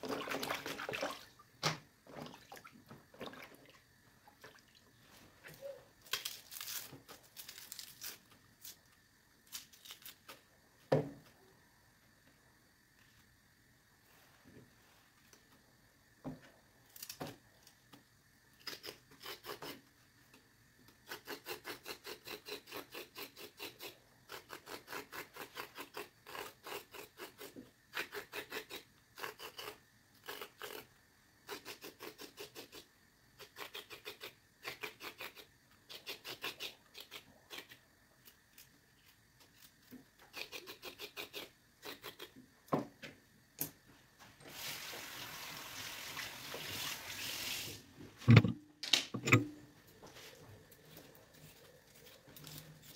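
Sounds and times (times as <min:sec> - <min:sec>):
knife scraping vegetable skin: 0:05.6 - 0:10.4, 0:18.6 - 0:19.9, 0:20.9 - 0:42.4, 0:51.3 - 0:52.9.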